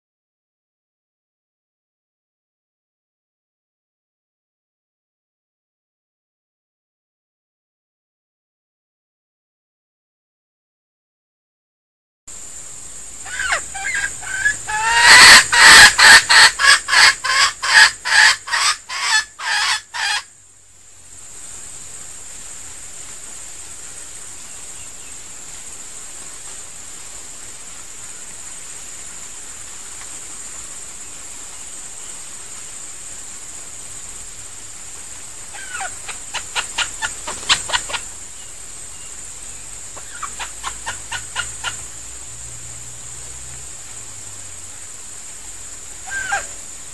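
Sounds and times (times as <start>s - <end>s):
rooster clucking calls: 13.2s - 20.3s, 35.5s - 38.2s, 39.9s - 42.0s, 46.0s - 46.7s.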